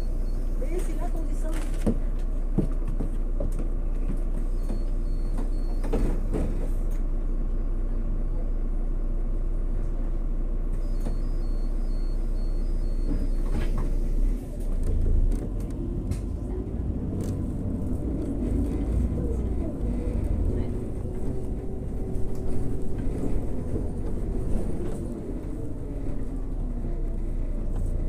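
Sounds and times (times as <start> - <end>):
bus engine humming: 0.0 - 28.0
door warning beeps: 4.5 - 6.3, 10.8 - 13.8.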